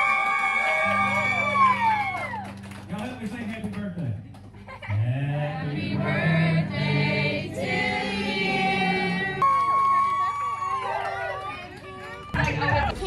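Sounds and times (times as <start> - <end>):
choir singing held notes: 5.0 - 9.5.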